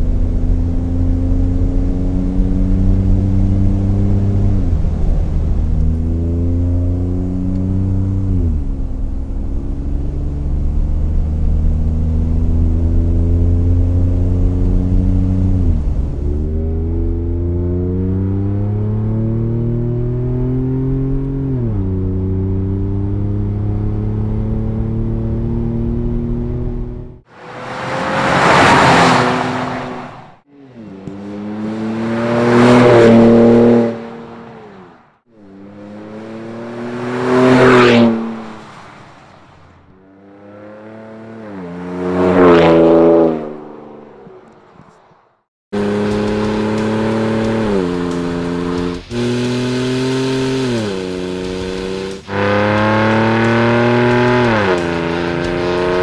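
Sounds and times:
continuous engine run: 0:45.8 - 0:56.0.

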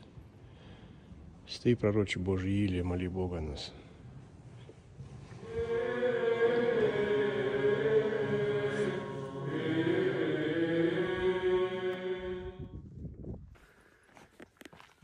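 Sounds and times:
church chant singing: 0:05.1 - 0:12.8.

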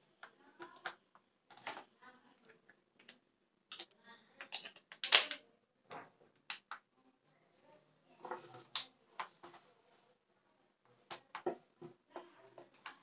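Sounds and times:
plastic clicks and knocks: 0:11.1 - 0:13.0.

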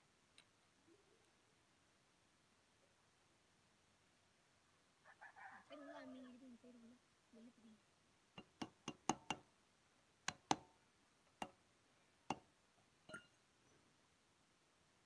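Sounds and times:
metal taps on wheel hub: 0:08.4 - 0:09.4.

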